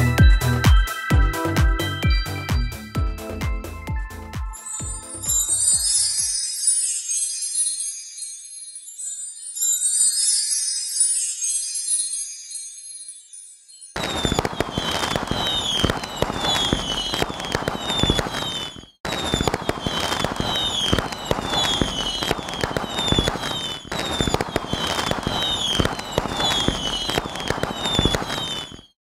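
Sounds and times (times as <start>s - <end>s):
falling whistles: 14.0s - 29.0s
fireworks crackling and popping: 14.0s - 29.0s.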